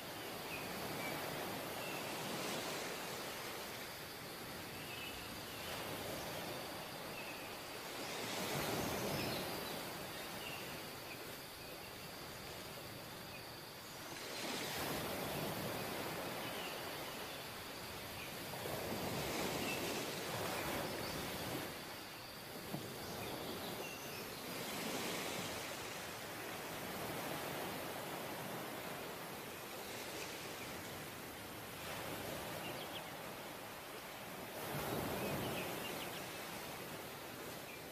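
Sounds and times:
sea surf washing up beach: 14.0 - 37.9.

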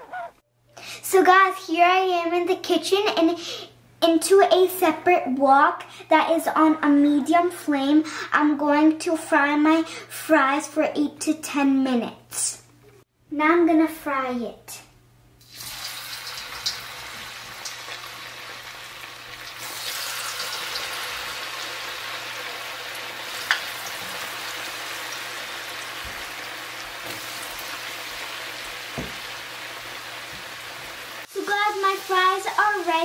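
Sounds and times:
fries sizzling in hot oil: 15.4 - 33.0.

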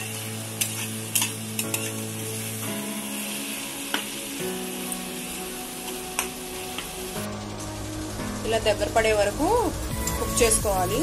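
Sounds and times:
background music with held notes: 0.0 - 11.0
vegetables sizzling in hot oil: 0.0 - 11.0.

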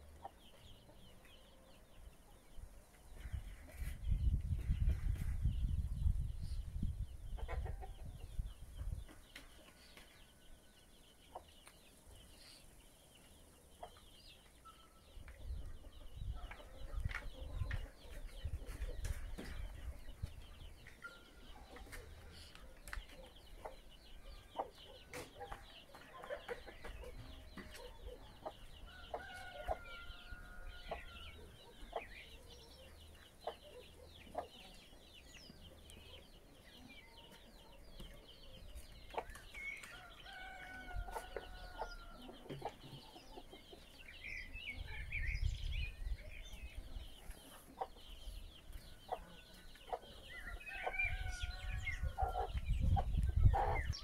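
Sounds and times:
birds calling: 0.0 - 54.0
chickens clucking: 0.0 - 54.0.

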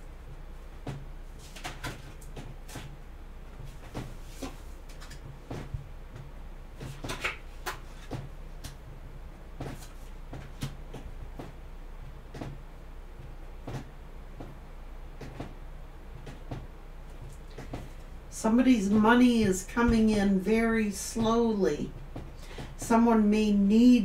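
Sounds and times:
low room hum: 0.0 - 24.0
cards being shuffled: 3.9 - 5.7, 6.8 - 8.8.

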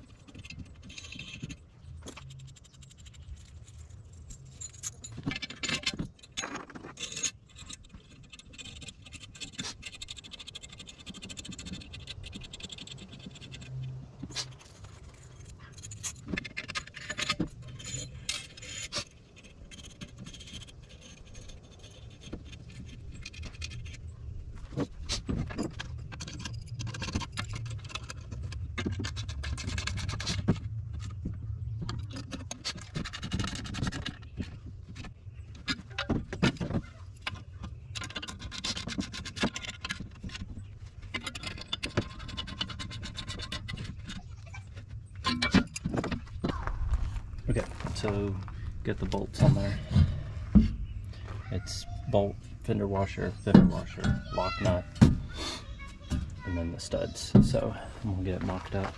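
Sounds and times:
bolts and washers clinking: 0.0 - 46.6, 48.0 - 58.9
low rumble: 46.2 - 51.4.

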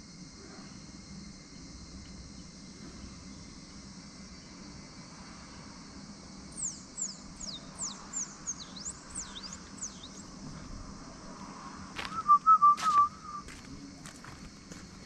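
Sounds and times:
bird calling high whistled notes: 12.0 - 13.6
wavering whistle-like tone: 12.0 - 13.6.

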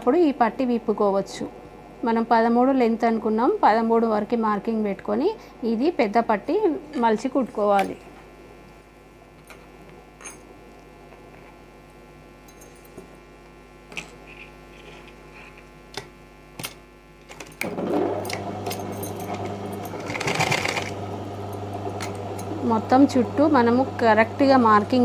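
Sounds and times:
sewing machine running hum: 17.6 - 25.0.

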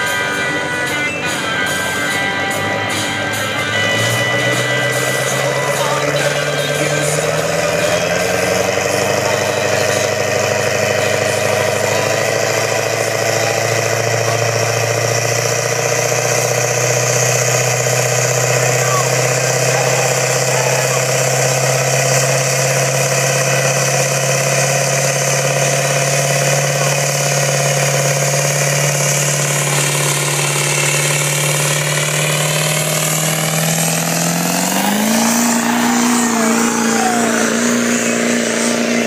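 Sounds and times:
diesel truck engine revving: 0.0 - 39.0
high turbo whistle: 29.7 - 39.0.

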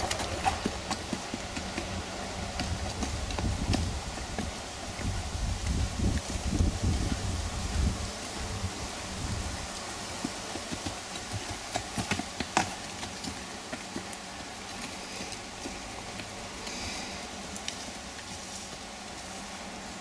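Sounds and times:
horse hoofbeats on dirt: 0.0 - 16.8
steady hiss: 0.0 - 20.0.

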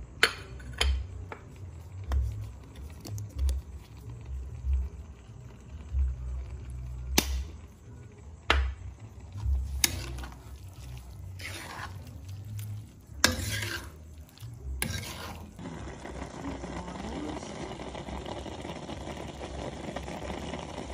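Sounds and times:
metal spatula scraping wok: 9.4 - 16.0.

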